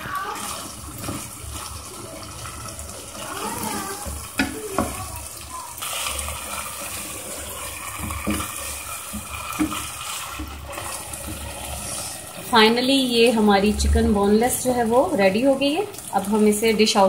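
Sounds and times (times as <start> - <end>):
chicken sizzling in a pan: 0.0 - 17.0
spatula scraping a pan: 5.8 - 12.6.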